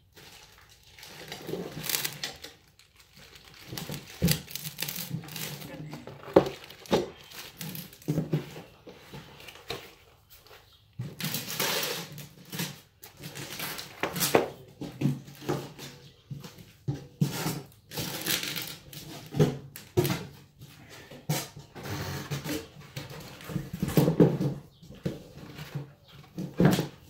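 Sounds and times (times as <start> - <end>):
plastic wrap crinkling: 0.0 - 14.6, 17.9 - 19.9
cardboard and metal parts handled: 0.0 - 21.2.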